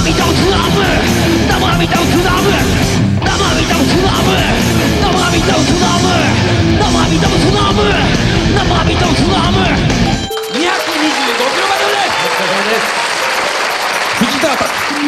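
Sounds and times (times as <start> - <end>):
shouted lead vocal: 0.0 - 10.1
pounding drums: 0.0 - 14.6
electric guitar: 0.0 - 14.8.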